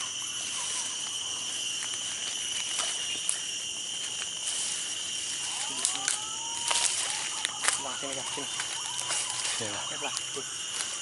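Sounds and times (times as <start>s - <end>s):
footsteps through undergrowth: 0.0s - 11.0s
insects droning: 0.0s - 11.0s
rising whistle-like call: 5.4s - 10.4s.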